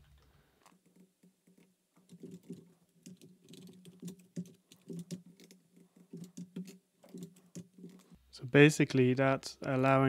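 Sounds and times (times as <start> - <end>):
faint keyboard typing: 0.2 - 8.2.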